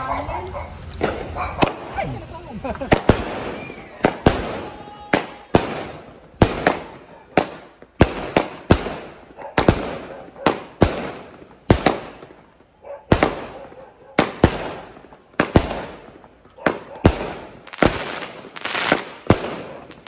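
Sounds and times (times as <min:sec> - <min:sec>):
fireworks bangs: 0:00.8 - 0:20.0.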